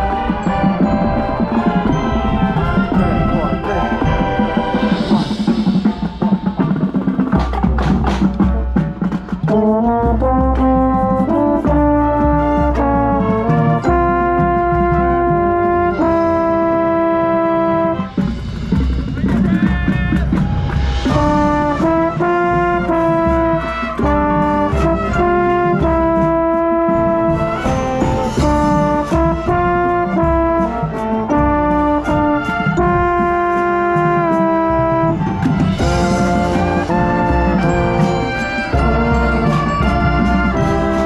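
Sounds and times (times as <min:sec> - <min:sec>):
drum hits: 0:00.0 - 0:11.1
brass chords: 0:00.0 - 0:41.0.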